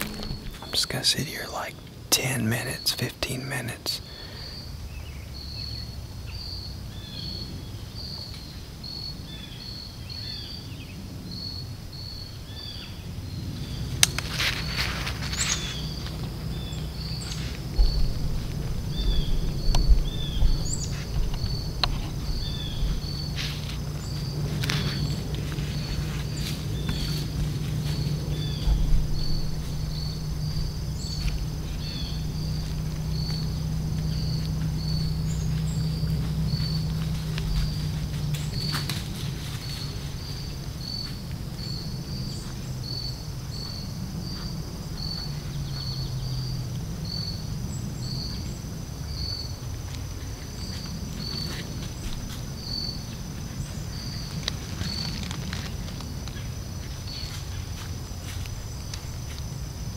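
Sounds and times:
low hum: 0.0s - 8.0s, 11.0s - 48.7s
insect chirping: 0.0s - 59.9s.

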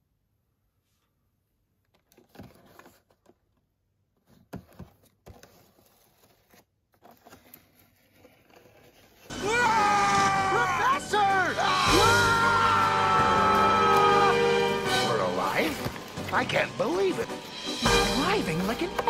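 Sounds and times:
handling cardboard and plastic box: 1.8s - 9.4s, 15.1s - 19.0s.

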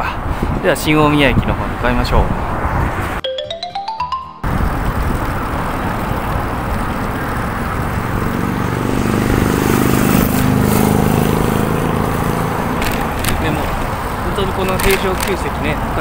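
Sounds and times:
street traffic noise: 0.0s - 16.0s
short rising jingle: 3.2s - 4.7s
vehicle engine hum: 4.5s - 16.0s.

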